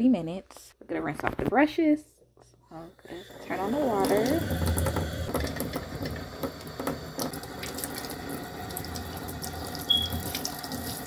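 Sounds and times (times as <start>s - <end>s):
faucet running into sink: 3.1s - 11.0s
short high squeak: 9.9s - 10.2s.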